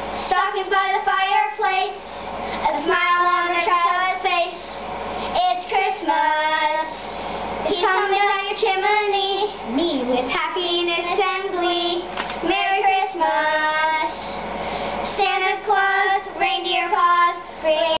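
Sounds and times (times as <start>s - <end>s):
girls singing unaccompanied: 0.3s - 2.0s, 2.7s - 4.6s, 5.4s - 6.9s, 7.6s - 14.2s, 15.2s - 18.0s.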